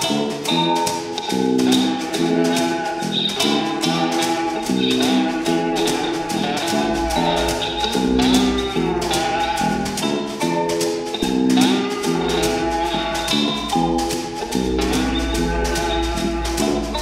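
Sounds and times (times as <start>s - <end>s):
brushes on snare drum: 0.0s - 17.0s
slide guitar blues riff: 0.0s - 17.0s
low bass: 6.2s - 10.0s.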